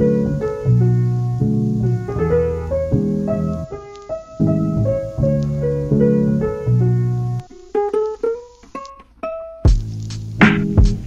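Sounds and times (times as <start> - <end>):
piano playing chords: 0.0 - 8.0.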